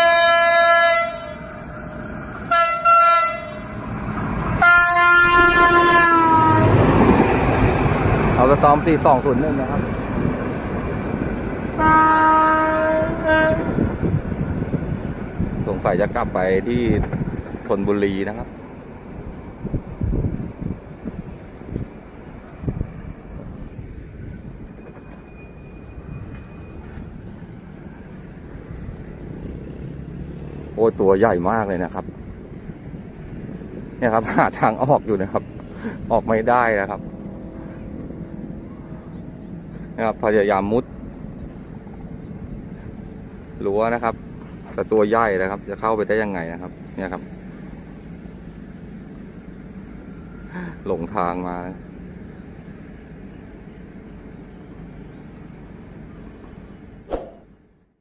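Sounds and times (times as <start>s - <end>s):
locomotive horn blasts: 0.0s - 1.6s, 2.5s - 3.8s, 4.6s - 6.8s, 11.8s - 13.9s
locomotive engine rumbling: 0.0s - 57.1s.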